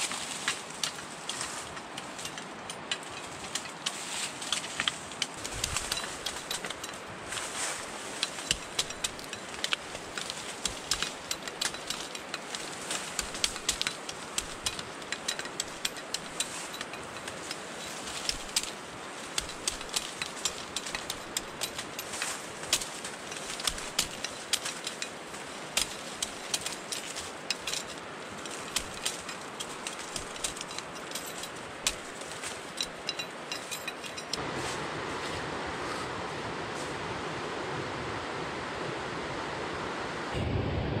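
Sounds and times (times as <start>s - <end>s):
leaves and twigs crunching underfoot: 0.0s - 37.2s
steady rushing noise: 0.0s - 41.0s
machete cutting bamboo: 8.2s - 32.8s.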